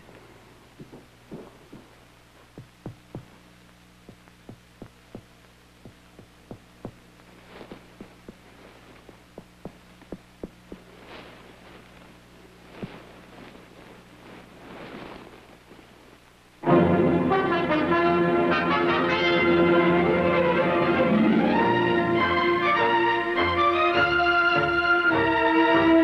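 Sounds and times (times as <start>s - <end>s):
low steady hum: 0.0s - 25.2s
fast heartbeat thumps: 0.8s - 11.3s.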